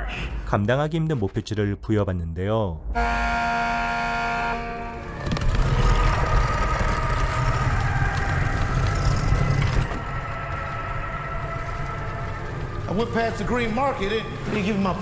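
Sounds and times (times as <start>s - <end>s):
millstone grinding rumble: 5.2s - 14.5s.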